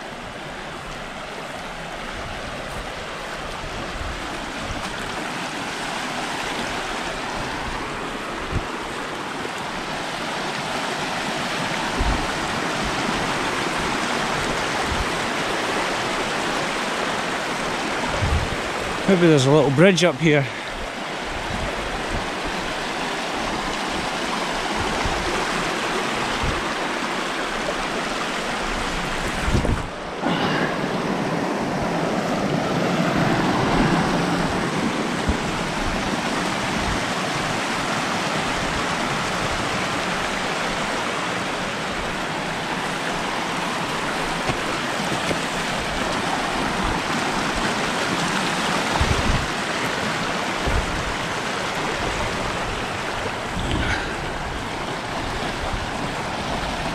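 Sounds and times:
stream rushing over stones: 0.0s - 56.9s.

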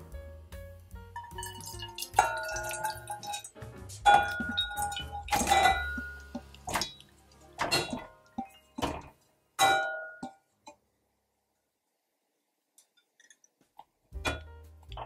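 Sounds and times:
glass bowl clinking on saucepan: 1.2s - 3.5s, 4.1s - 7.0s, 7.6s - 10.4s
meat splashing into liquid: 1.3s - 8.6s.

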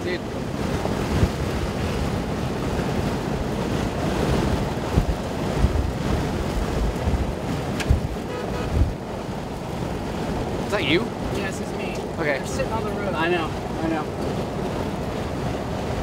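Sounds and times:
wind thumps on microphone: 0.0s - 12.2s
road noise: 0.0s - 16.0s
wind buffeting microphone: 0.0s - 16.0s.

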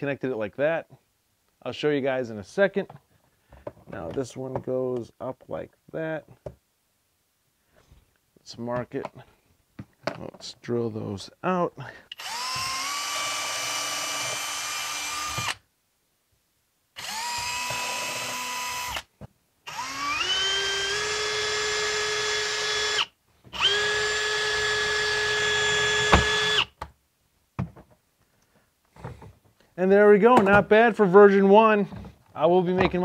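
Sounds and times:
drill sharp click: 12.1s - 15.6s
power drill whining: 12.1s - 15.6s, 17.0s - 19.1s, 19.7s - 26.8s.

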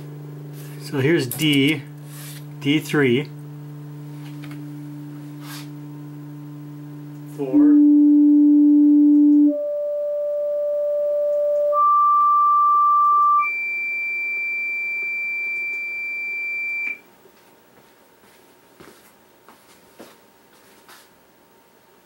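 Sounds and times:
sine test tones: 2.6s - 17.1s.

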